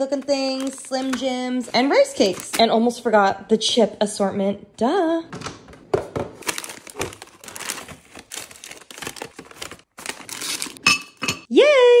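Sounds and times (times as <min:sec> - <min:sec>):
foil bags crinkling: 0:00.0 - 0:02.8, 0:06.4 - 0:10.9
ceramic bowl clinking: 0:10.8 - 0:11.5.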